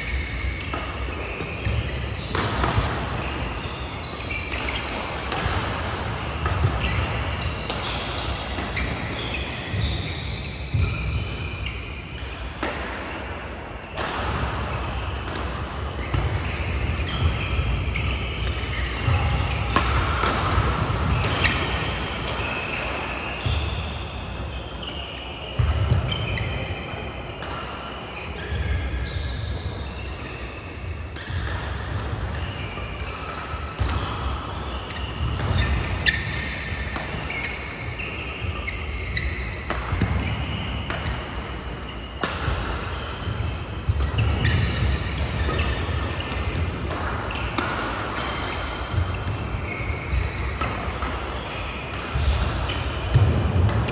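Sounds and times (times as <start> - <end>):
rackets striking shuttlecock: 0.4 - 3.4, 4.5 - 9.4, 15.2 - 23.0, 35.2 - 37.9, 38.6 - 53.9
shoes squeaking: 3.2 - 5.2, 33.8 - 53.2.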